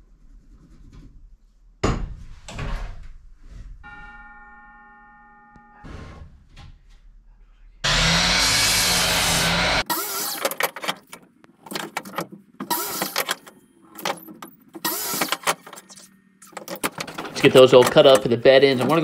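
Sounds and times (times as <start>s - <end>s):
miter saw cutting wood: 7.8s - 10.4s.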